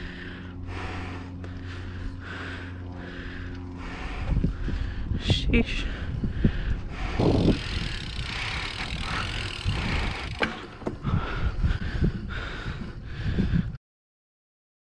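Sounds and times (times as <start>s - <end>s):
bicycle tyres on asphalt: 0.0s - 5.2s, 6.0s - 13.3s
wind rumble on microphone: 3.7s - 13.8s
bike clicks and knocks: 7.3s - 11.1s.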